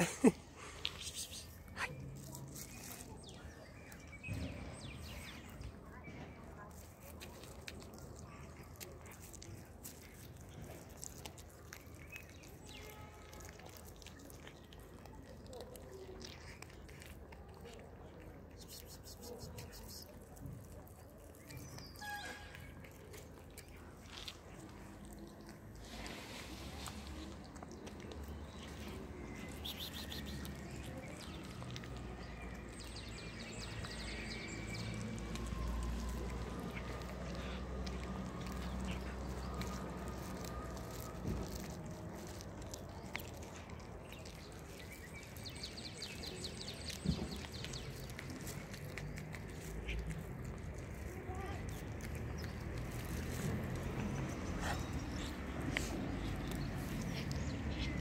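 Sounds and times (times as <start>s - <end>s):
cat chewing: 0.0s - 58.0s
outdoor background noise: 0.0s - 58.0s.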